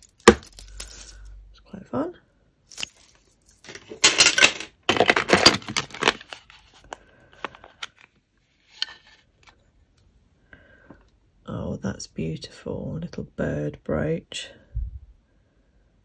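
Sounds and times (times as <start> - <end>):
jewellery chains clinking and jangling: 0.0 - 1.3, 2.7 - 4.6.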